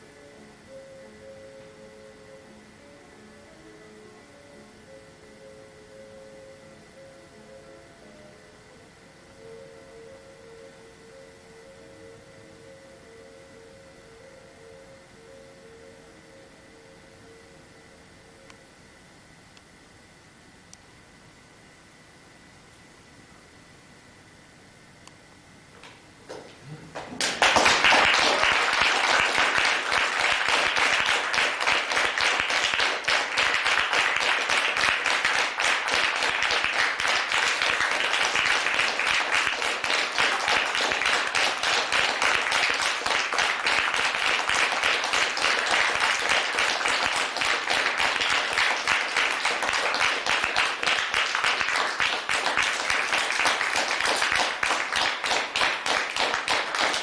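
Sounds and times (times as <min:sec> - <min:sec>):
audience applauding: 0:26.9 - 0:57.0.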